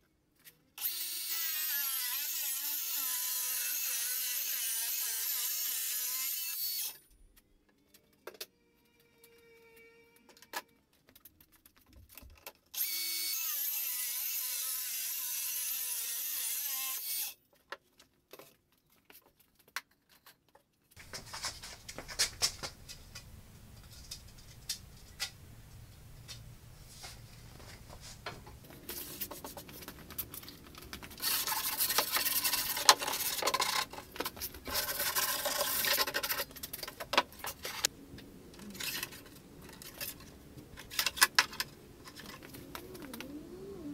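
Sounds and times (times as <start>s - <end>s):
wooden pieces knocking and rubbing: 17.5s - 43.3s.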